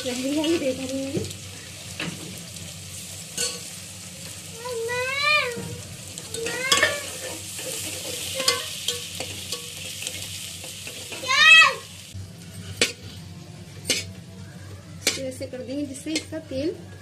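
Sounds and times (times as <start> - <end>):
onions sizzling in oil: 0.0 - 17.0
metal spoon scraping and tapping pot: 12.6 - 13.2, 13.8 - 14.2, 15.0 - 15.4, 16.0 - 16.5.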